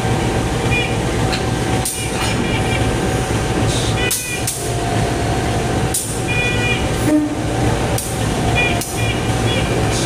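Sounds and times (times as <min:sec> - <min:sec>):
diesel locomotive running: 0:00.0 - 0:10.0.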